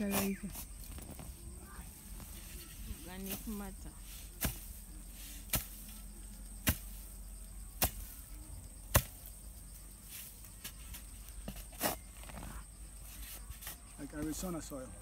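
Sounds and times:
spade chopping into hard ground: 4.4 - 4.8, 5.4 - 6.0, 6.6 - 7.1, 7.8 - 8.2, 8.9 - 9.3, 10.1 - 12.5.

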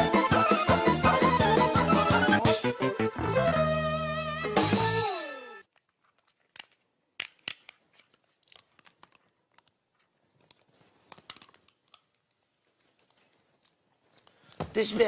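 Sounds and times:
theme music with falling slide: 0.0 - 5.6.

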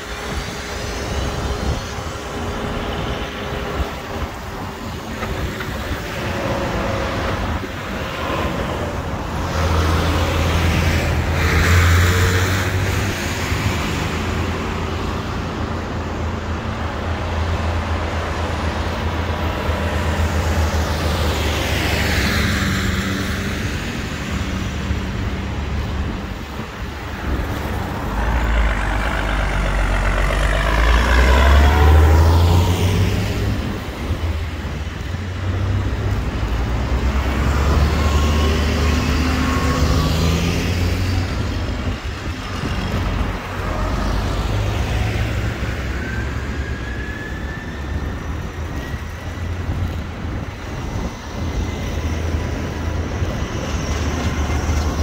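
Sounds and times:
tyres hissing on wet road: 0.0 - 55.0
diesel tractor engine: 13.8 - 46.8
low engine rumble: 26.0 - 34.2.

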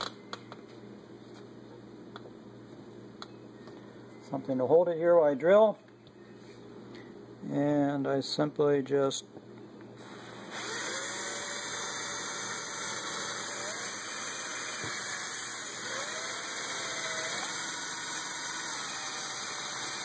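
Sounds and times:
cordless drill boring plastic: 10.0 - 20.0.

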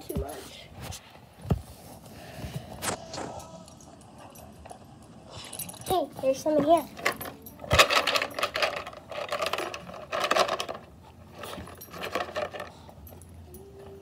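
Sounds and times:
dog treats rattling in plastic jug: 7.0 - 12.8.

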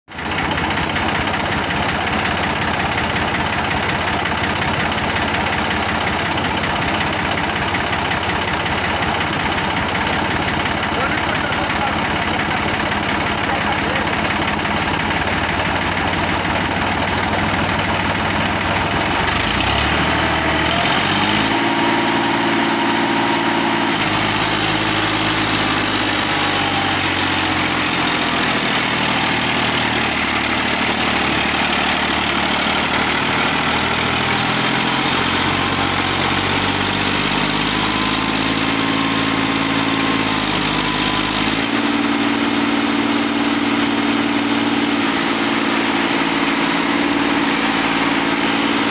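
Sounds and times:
tractor diesel engine running: 0.1 - 48.9.

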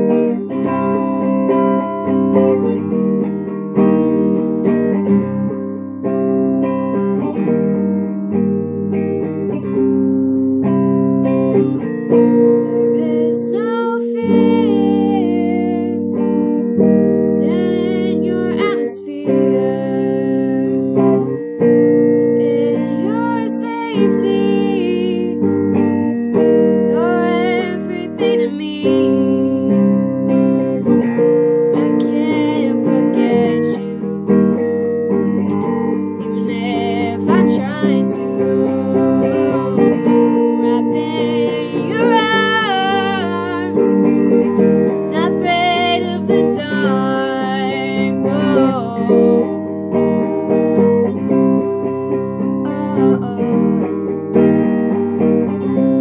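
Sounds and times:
person singing: 0.0 - 3.3, 11.5 - 16.3, 17.1 - 21.4, 22.3 - 25.5, 26.8 - 31.0, 31.7 - 34.8, 35.4 - 44.4, 45.0 - 50.2, 52.6 - 54.1, 55.4 - 56.0
strummed acoustic guitar: 0.0 - 56.0.

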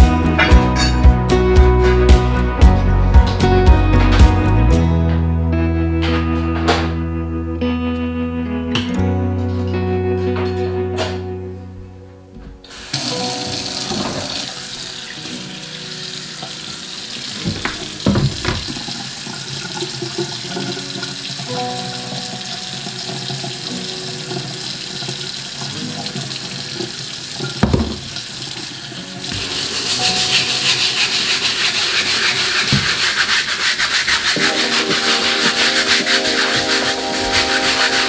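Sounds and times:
faucet running into steel sink: 12.7 - 37.9
sharp knocks: 17.4 - 18.8
brush scrubbing board: 29.3 - 38.0.

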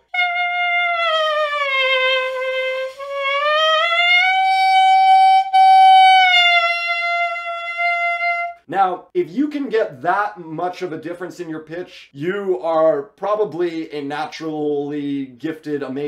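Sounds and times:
clarinet mouthpiece reedy tone: 0.0 - 8.7.

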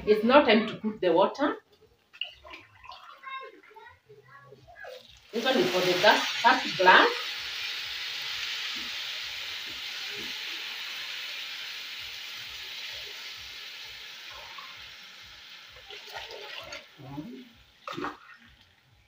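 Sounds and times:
water pouring into a glass: 2.2 - 3.7, 15.8 - 17.0
rice and beef sizzling in oil: 4.8 - 17.9.

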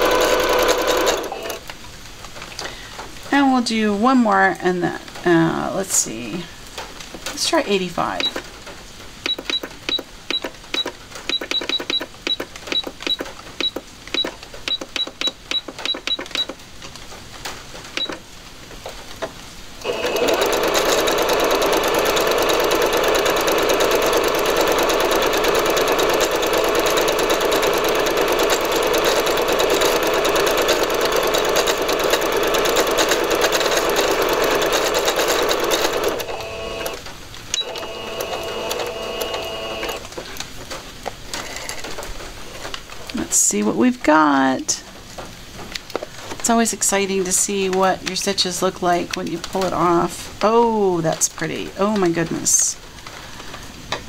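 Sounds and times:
sewing machine sewing: 0.0 - 1.7, 19.8 - 40.1
button beeps and clicks: 9.3 - 16.5.

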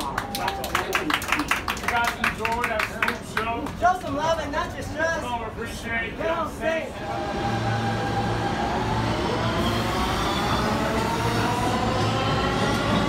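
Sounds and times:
subway train rumble and hum: 3.1 - 13.0.

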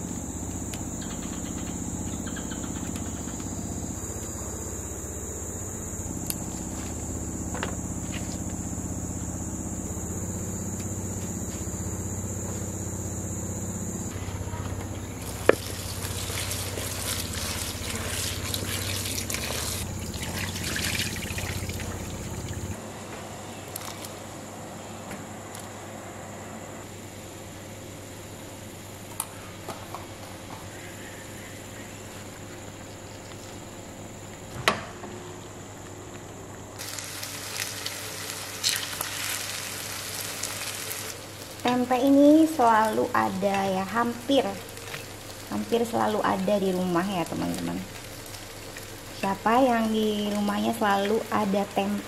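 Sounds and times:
low hum: 0.0 - 23.6
insects chirring: 0.0 - 52.0
water pouring and trickling: 15.2 - 22.8, 36.8 - 41.2.

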